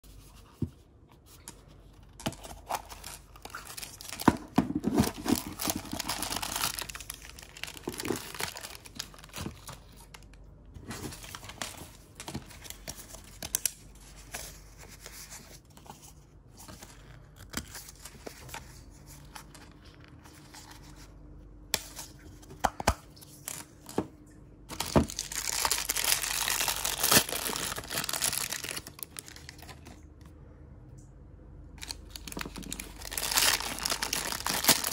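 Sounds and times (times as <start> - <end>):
plastic wrapping rustling: 2.1 - 20.9, 24.7 - 30.0, 31.8 - 34.9.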